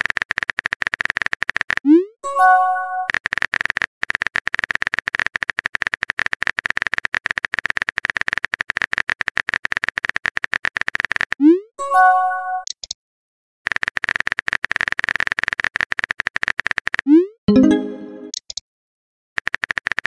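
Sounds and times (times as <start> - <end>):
message chime: 2.2 - 3.1, 11.8 - 12.6, 17.5 - 18.4
keyboard typing clicks: 16.8 - 18.6.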